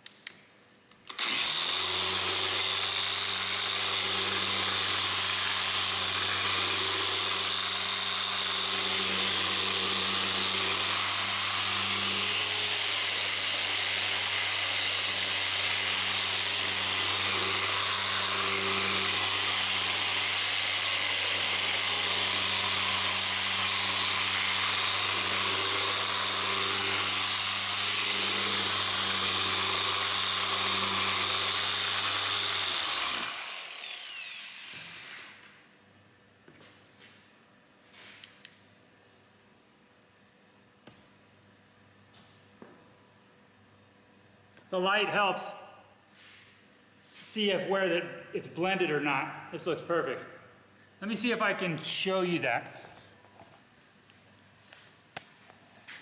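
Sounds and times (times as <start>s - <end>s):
orbital sander whirring: 1.1s - 35.6s
sander pad hissing on surface: 37.8s - 38.4s, 46.1s - 47.5s.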